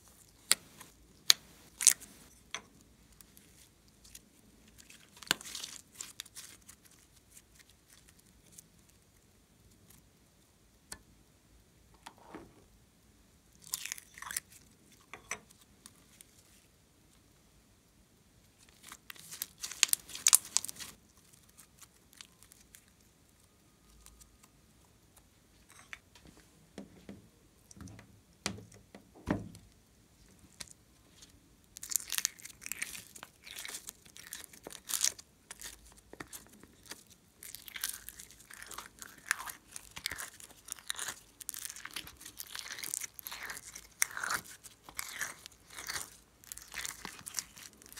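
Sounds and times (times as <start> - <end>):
slime crackling: 18.7 - 22.9, 31.7 - 47.9.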